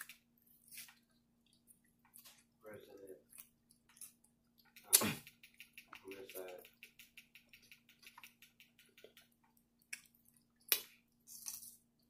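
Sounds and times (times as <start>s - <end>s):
lip smacks and mouth clicks: 6.6s - 11.0s.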